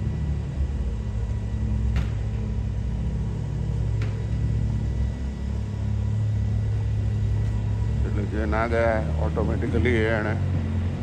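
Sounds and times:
garbage truck engine rumbling: 0:00.0 - 0:11.0.

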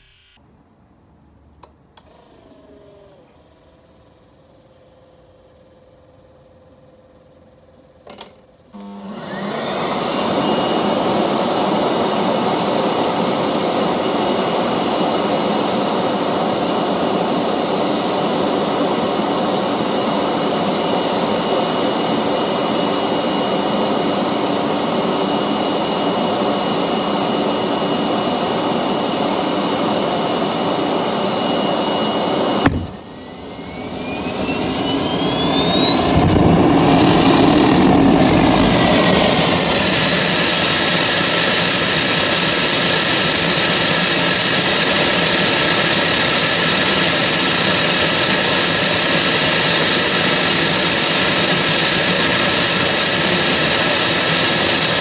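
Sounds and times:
gas turbine rushing with high whine: 0:08.8 - 0:55.0
gas turbine pop: 0:32.6 - 0:33.1.

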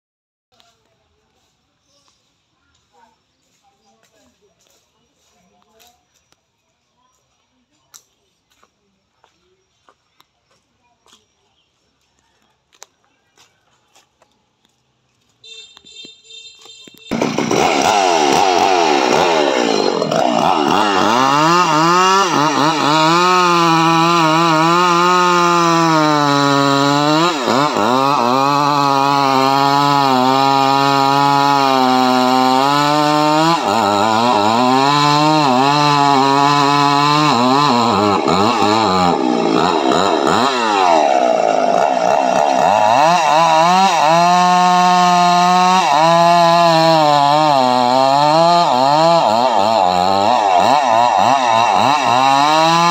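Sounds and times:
chainsaw cutting wood: 0:15.5 - 0:52.9.

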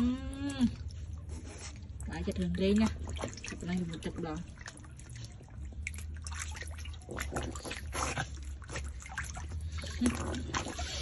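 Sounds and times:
otter splashing in shallow water: 0:01.7 - 0:11.0.

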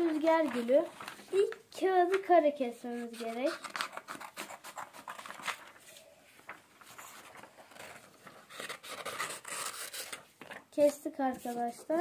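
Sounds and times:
scissors snipping paper: 0:03.1 - 0:05.6.

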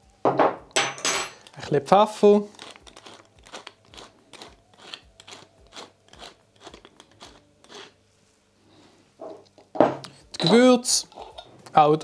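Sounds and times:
pepper mill grinding peppercorns: 0:01.4 - 0:08.0.

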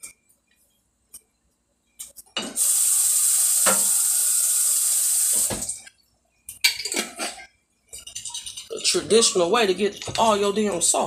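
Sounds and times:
kitchen tap running: 0:02.6 - 0:05.8.

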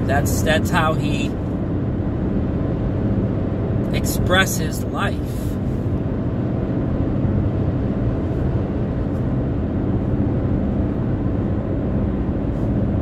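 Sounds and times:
car road and engine noise: 0:00.0 - 0:13.0.

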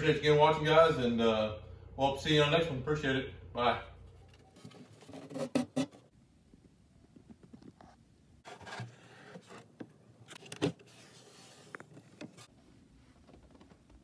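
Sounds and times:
wood rubbing and scraping: 0:07.8 - 0:12.6.

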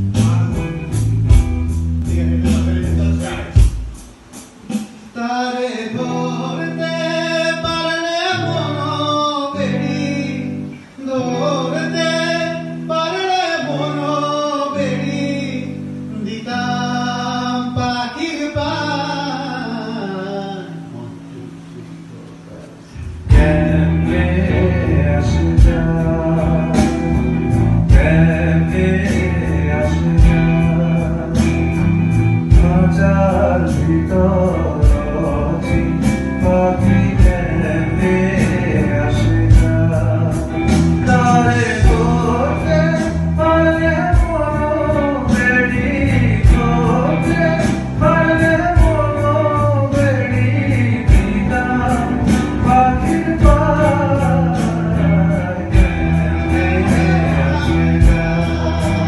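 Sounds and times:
live band playing: 0:00.0 - 0:59.0
harmonica lead melody: 0:33.7 - 0:59.0.

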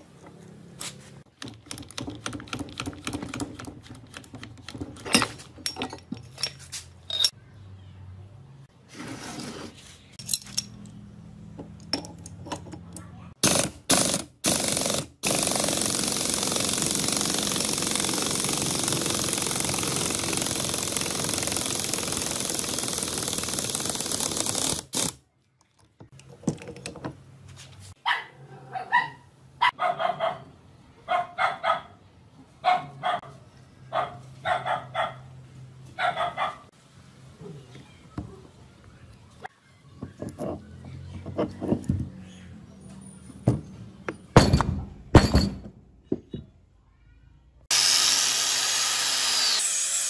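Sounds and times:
impact wrench running: 0:13.4 - 0:25.2, 0:47.7 - 0:50.0
dog barking: 0:28.0 - 0:32.0, 0:32.6 - 0:35.3, 0:36.0 - 0:36.7.

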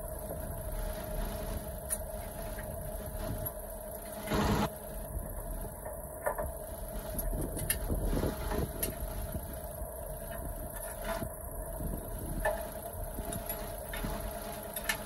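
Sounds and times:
diesel tractor idling: 0:00.0 - 0:15.0.

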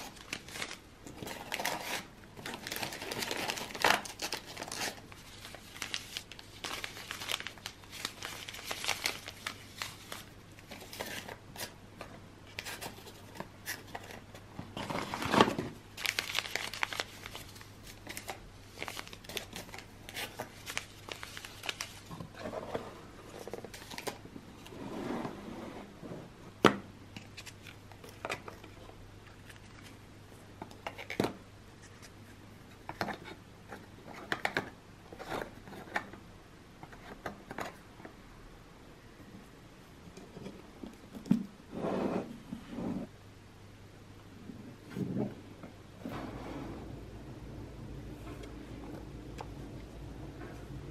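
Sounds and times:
paper sachets rustling: 0:00.0 - 0:11.7, 0:12.6 - 0:22.4.

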